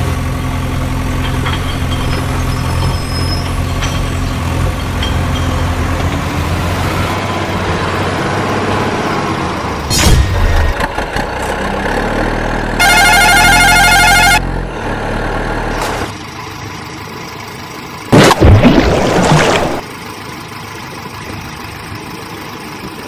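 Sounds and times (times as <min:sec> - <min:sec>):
truck engine running: 0:00.0 - 0:23.0
warbling vehicle horn: 0:12.8 - 0:14.5.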